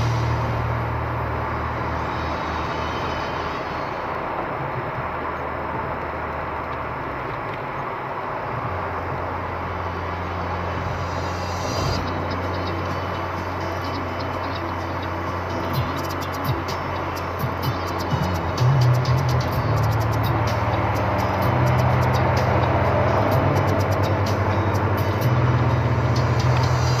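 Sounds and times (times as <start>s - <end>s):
low engine drone: 0.0s - 27.0s
tyre hiss on wet road: 10.4s - 12.2s.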